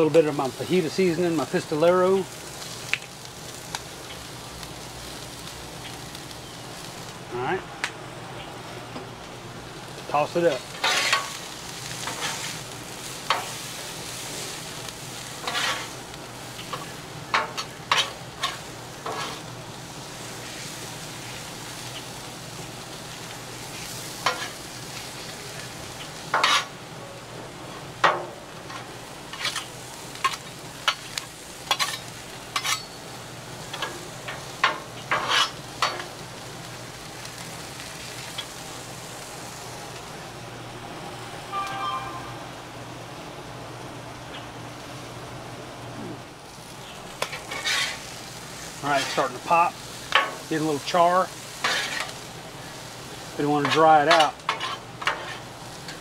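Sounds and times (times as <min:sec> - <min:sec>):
corn sizzling on a griddle: 0:00.0 - 0:42.2, 0:43.2 - 0:56.0
metal spatulas scraping: 0:10.8 - 0:11.3, 0:15.4 - 0:15.9, 0:26.4 - 0:26.7, 0:31.7 - 0:33.0, 0:35.1 - 0:35.6, 0:47.3 - 0:48.0, 0:51.6 - 0:52.1, 0:53.6 - 0:55.4.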